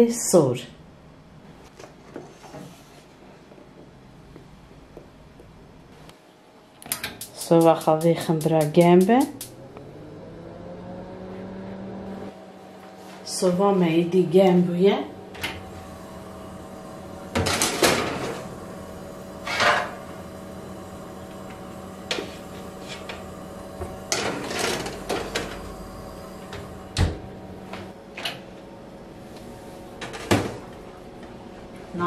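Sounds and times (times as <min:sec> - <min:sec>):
steady low hum: 0:03.3 - 0:32.0
oven door opening: 0:21.4 - 0:28.4.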